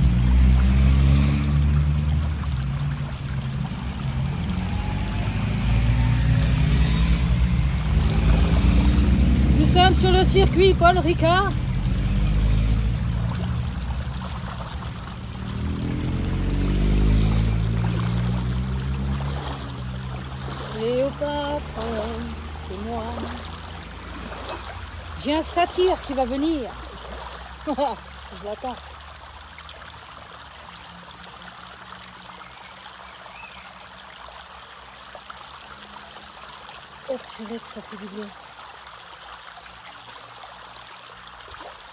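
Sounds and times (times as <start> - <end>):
creek trickling over stones: 0.0 - 41.9
stream water flowing and splashing: 0.0 - 41.9
water poured over person: 0.0 - 41.9
low droning hum: 1.7 - 25.3.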